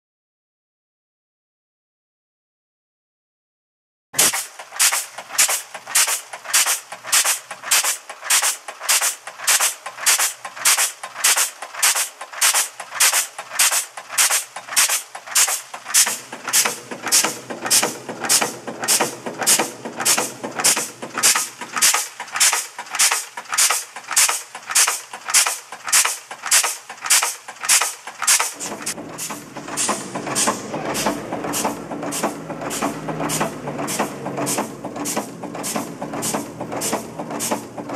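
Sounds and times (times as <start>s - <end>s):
machine clacking rhythmically: 4.2s - 37.9s
low machine hum: 28.6s - 37.9s.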